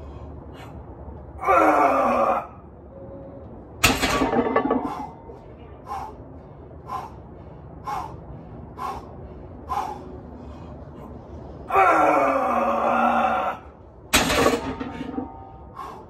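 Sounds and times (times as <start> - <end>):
clank of weight plates: 3.8 - 5.2, 14.2 - 15.4.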